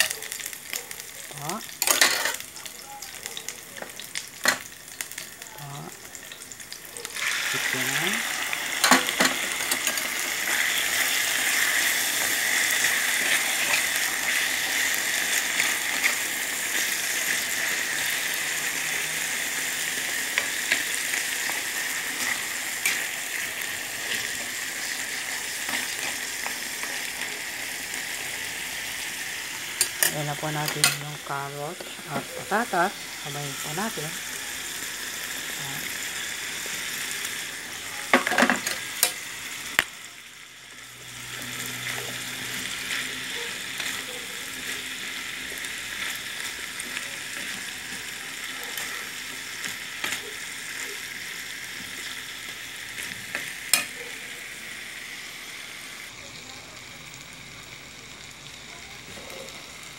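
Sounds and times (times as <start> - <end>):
chicken sizzling in pan: 0.0 - 59.9
onion and garlic sizzling in oil: 0.0 - 59.9.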